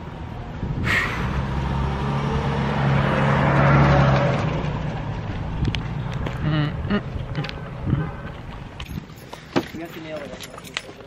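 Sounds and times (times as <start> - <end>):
vehicle engine hum: 0.0 - 9.6
vehicle rushing past: 0.3 - 6.7.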